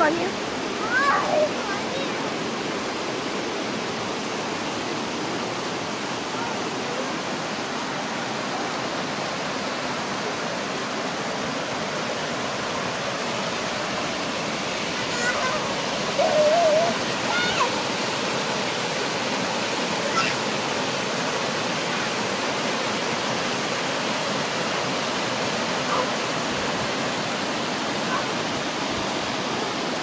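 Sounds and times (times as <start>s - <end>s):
mountain stream rushing over rocks: 0.0s - 30.0s
wavering voice-like call: 15.2s - 17.7s.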